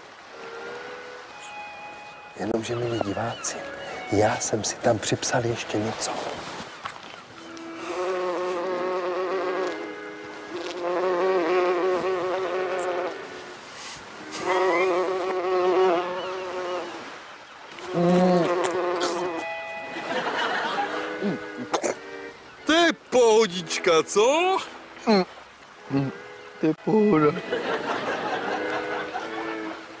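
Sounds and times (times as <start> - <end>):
insect buzzing: 7.5 - 13.6, 14.2 - 19.5.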